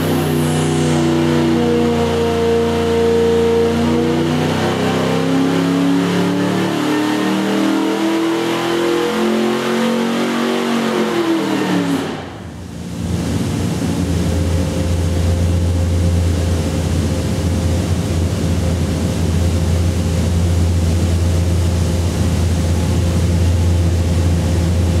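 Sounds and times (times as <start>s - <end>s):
noisy rush: 0.0s - 5.0s, 10.0s - 25.0s
engine running on dyno: 0.0s - 25.0s.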